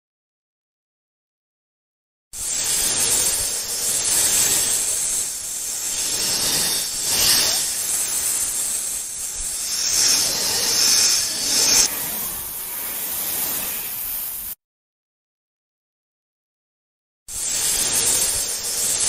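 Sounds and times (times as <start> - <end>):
snake hissing: 2.4 - 14.6, 17.3 - 19.0.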